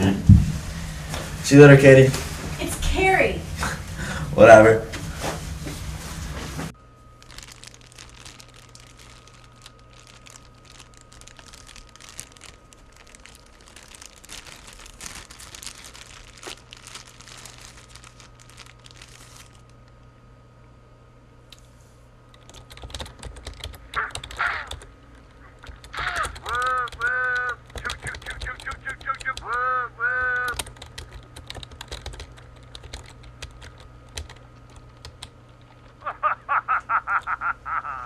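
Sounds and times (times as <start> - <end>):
plastic bag crinkling: 7.0 - 20.0.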